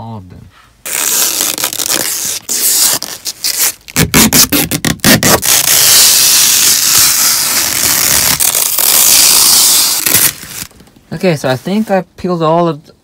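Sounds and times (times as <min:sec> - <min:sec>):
long steady tearing: 0:00.8 - 0:10.8
plastic film ripping: 0:00.8 - 0:10.9.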